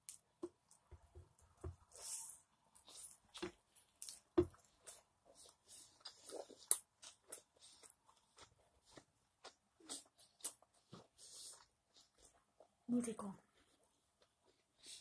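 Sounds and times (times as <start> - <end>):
person chewing with lip smacks: 2.8 - 12.7.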